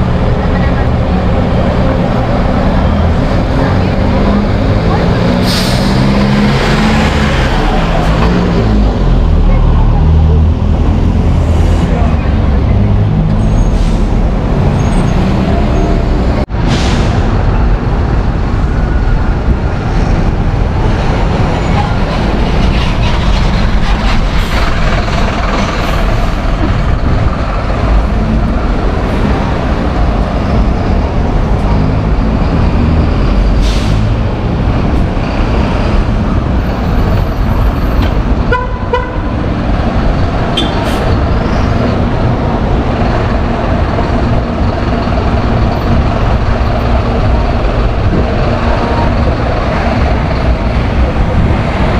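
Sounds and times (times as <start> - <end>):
bus engines rumbling: 0.0 - 51.9
horn toot: 38.5 - 39.3.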